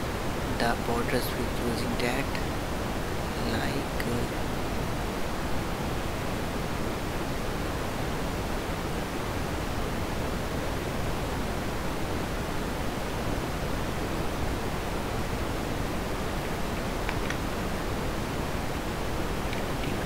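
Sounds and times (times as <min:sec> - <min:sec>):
steady background hiss: 0:00.0 - 0:20.0.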